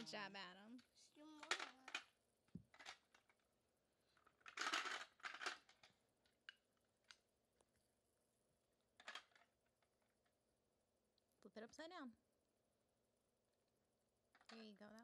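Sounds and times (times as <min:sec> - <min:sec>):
plastic blocks clicking and clattering: 0:01.4 - 0:07.2, 0:08.9 - 0:10.3, 0:14.3 - 0:15.0.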